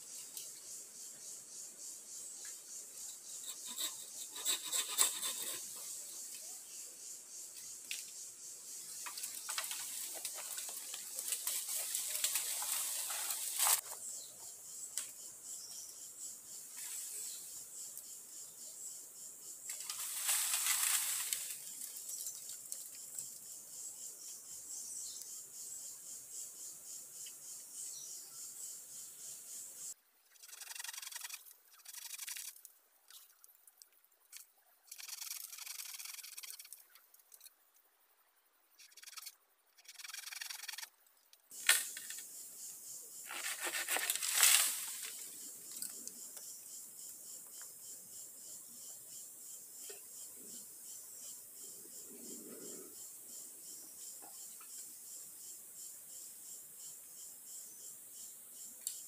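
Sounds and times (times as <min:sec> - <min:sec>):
insect chorus: 0:00.0 - 0:59.0
bamboo poles scraping and rustling: 0:03.4 - 0:05.8, 0:09.0 - 0:14.0, 0:19.7 - 0:22.8, 0:43.2 - 0:45.3.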